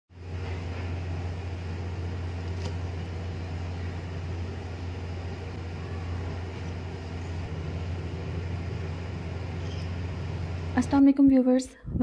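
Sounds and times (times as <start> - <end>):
low hum: 0.1 - 11.2.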